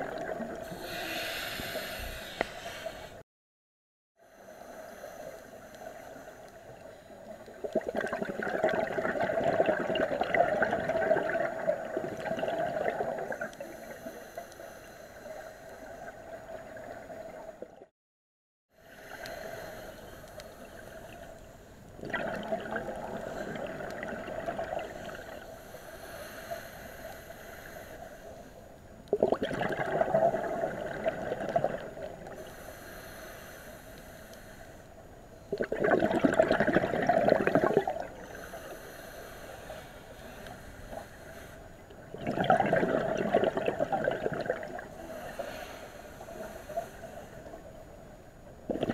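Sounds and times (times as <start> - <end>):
air bubbling from diving regulator: 0.0 - 2.7, 7.5 - 13.8, 22.0 - 25.4, 29.1 - 32.4, 35.5 - 38.2, 42.0 - 45.1, 48.7 - 48.9
steady underwater hiss: 0.0 - 3.2, 4.2 - 17.7, 18.7 - 48.9.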